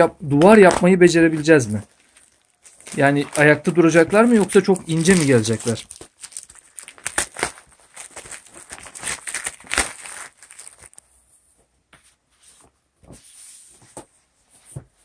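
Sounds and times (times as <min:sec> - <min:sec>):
foam mat tiles rustling and slapping: 0:00.4 - 0:11.0.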